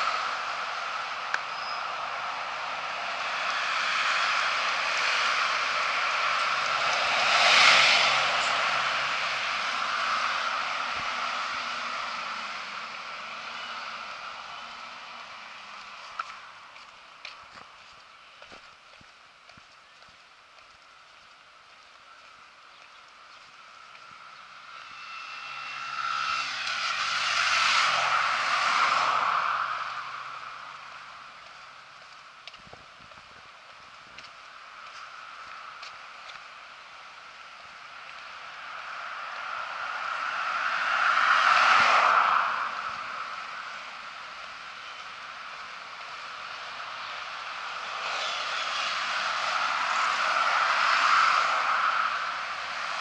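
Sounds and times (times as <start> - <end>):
car driving past: 0.0 - 16.7, 24.0 - 31.8, 37.8 - 53.0
bus passing by: 0.0 - 19.4, 20.8 - 53.0
tyre rush on asphalt: 0.0 - 53.0.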